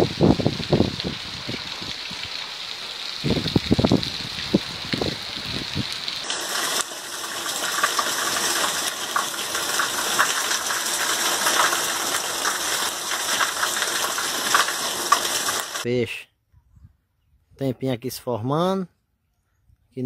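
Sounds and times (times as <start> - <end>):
heavy rain: 0.0 - 15.8
water dripping and splatting: 0.0 - 15.8
water gushing from roof spout: 0.0 - 15.9.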